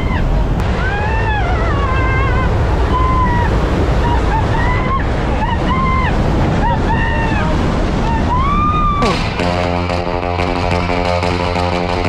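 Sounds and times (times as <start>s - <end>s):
high-pitched voice crying out: 0.0s - 9.3s
aircraft engine noise: 0.0s - 12.0s
rush of wind: 0.0s - 12.0s.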